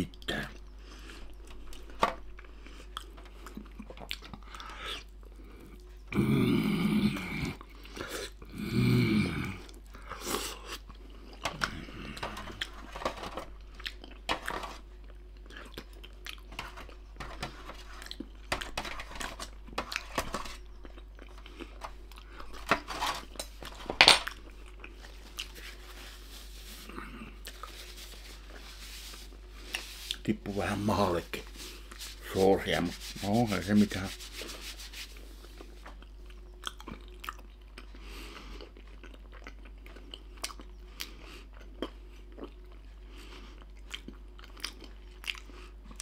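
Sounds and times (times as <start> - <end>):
chewing with wet mouth clicks: 2.4 - 6.0, 13.6 - 14.3, 15.0 - 17.0, 36.0 - 42.9, 43.5 - 46.0.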